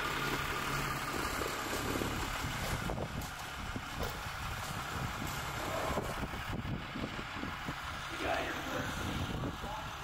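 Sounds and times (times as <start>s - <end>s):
truck engine rumbling past: 0.0s - 10.0s.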